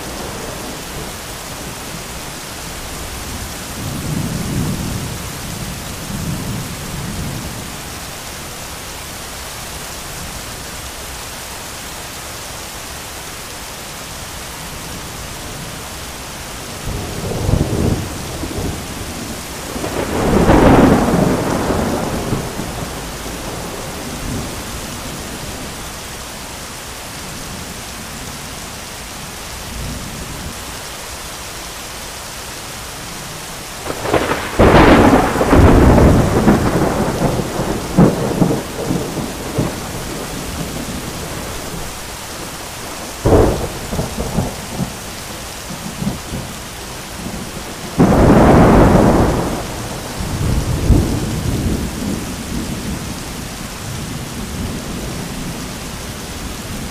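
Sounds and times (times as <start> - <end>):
heavy rain pouring: 0.0 - 56.9
thunder cracking and rumbling: 16.9 - 25.8, 33.8 - 42.1, 42.8 - 53.2.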